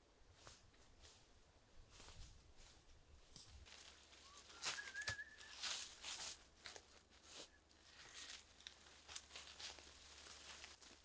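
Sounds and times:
footsteps on dry leaves: 0:01.9 - 0:11.0
thin whistle-like note: 0:04.2 - 0:05.6.

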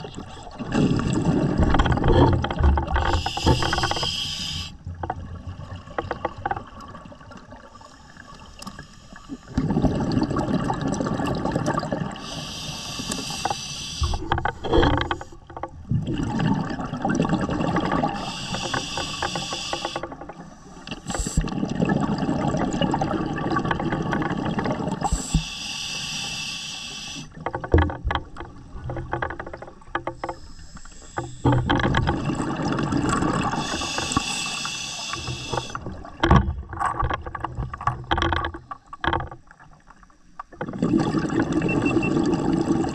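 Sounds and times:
faint crackle: 0:00.0 - 0:10.2, 0:23.4 - 0:40.8
diver breathing through regulator: 0:03.0 - 0:04.8, 0:12.2 - 0:15.4, 0:18.0 - 0:21.6, 0:25.0 - 0:27.4, 0:30.1 - 0:31.7, 0:33.4 - 0:35.9
bubbling exhale: 0:16.0 - 0:20.1, 0:32.2 - 0:36.0.

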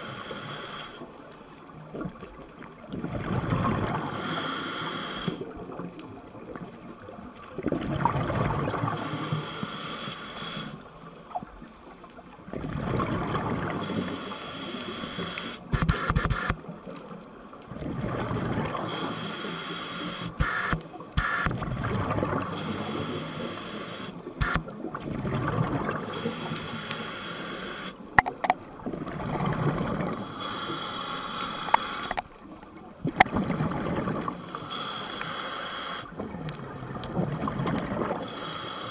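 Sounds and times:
scuba regulator breathing bubbles: 0:00.0 - 0:01.1, 0:03.3 - 0:05.6, 0:08.1 - 0:10.8, 0:12.7 - 0:16.5, 0:17.8 - 0:28.4, 0:29.1 - 0:32.2, 0:33.2 - 0:36.3, 0:37.1 - 0:38.9
sharp clicks: 0:14.8 - 0:16.6, 0:20.0 - 0:21.6, 0:24.4 - 0:24.7, 0:26.3 - 0:28.6, 0:30.5 - 0:32.3.

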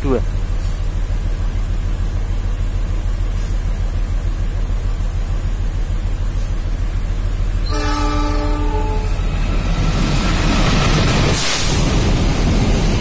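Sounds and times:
diesel locomotive rumble: 0:00.0 - 0:13.0
train horn: 0:07.6 - 0:09.3.

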